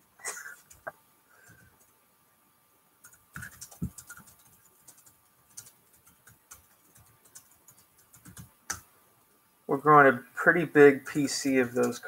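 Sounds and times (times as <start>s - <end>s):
keyboard typing: 3.0s - 8.8s, 11.1s - 12.0s.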